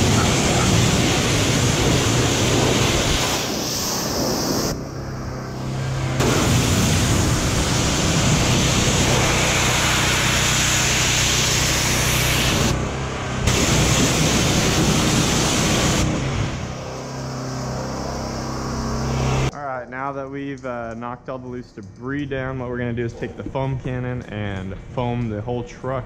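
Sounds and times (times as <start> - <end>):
pressure washer spray hissing on metal: 0.0 - 4.8, 5.6 - 19.5
steady low hum: 0.0 - 19.6.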